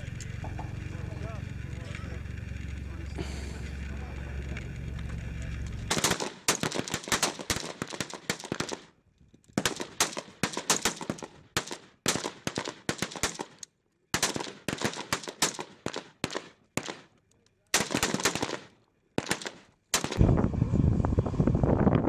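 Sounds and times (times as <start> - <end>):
rifles firing: 5.9 - 8.9, 9.6 - 20.2.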